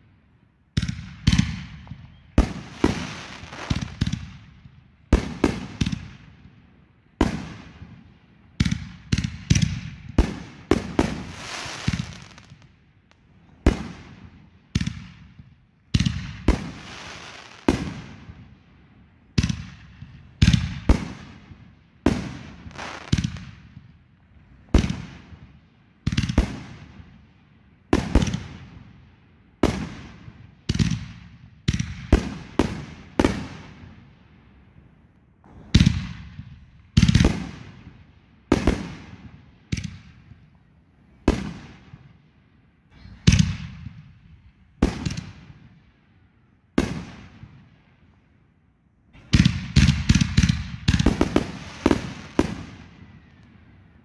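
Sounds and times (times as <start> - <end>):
firework bangs: 0.8 - 4.4, 8.6 - 12.7, 15.9 - 18.4, 31.7 - 34.0, 35.4 - 37.9, 44.8 - 45.6, 49.1 - 53.3.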